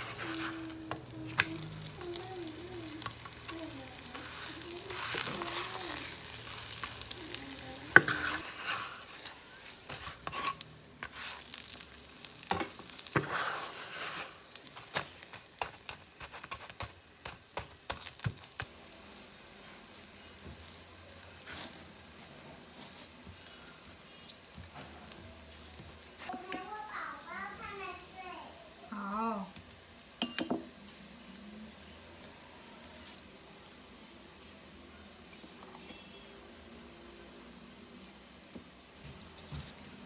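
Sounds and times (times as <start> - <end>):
spatula scraping and knocking pan: 0.0 - 2.1, 3.0 - 11.8, 12.4 - 18.7
pancake sizzling in oil: 0.0 - 40.0.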